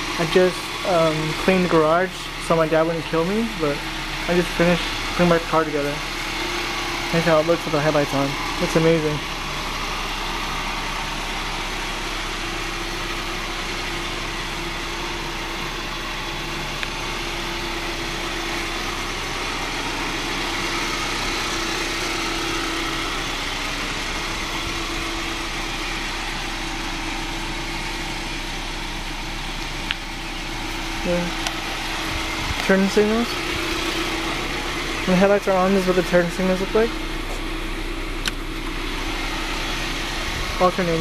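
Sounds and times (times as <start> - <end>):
car engine idling: 0.0 - 41.0.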